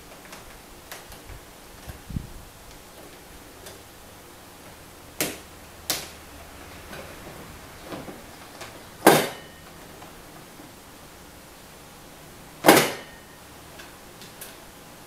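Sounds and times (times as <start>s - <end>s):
sharp knocks: 9.0s - 9.6s.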